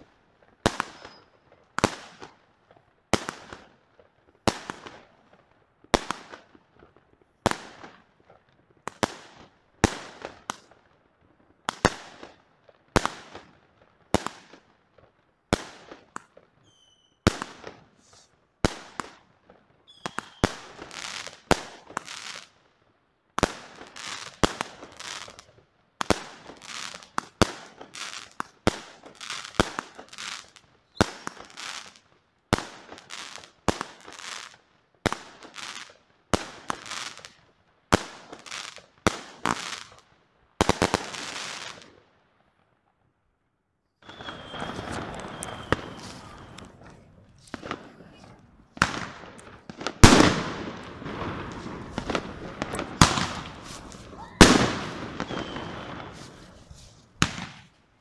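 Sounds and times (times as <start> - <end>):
fireworks bangs with crackling: 0.0 - 10.8, 11.5 - 22.6, 23.4 - 40.0, 40.6 - 42.0, 44.0 - 57.8
fireworks whistling: 0.7 - 1.4, 16.6 - 19.0, 19.8 - 22.4, 26.1 - 32.0, 44.0 - 57.8.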